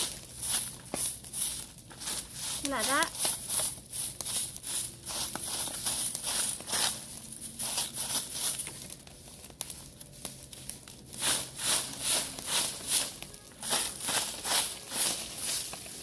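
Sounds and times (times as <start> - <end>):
stick broom sweeping leaves: 0.0 - 16.0.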